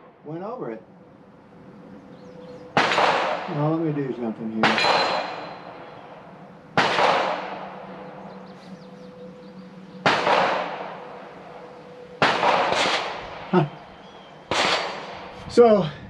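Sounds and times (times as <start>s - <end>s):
echoing gunshots: 0.0s - 15.4s
short sharp crack: 14.5s - 15.2s.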